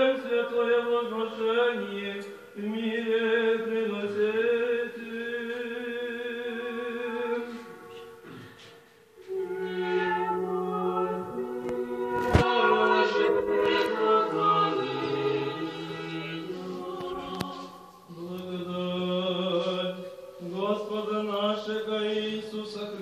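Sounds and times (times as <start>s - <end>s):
choir chanting in harmony: 9.3s - 23.0s.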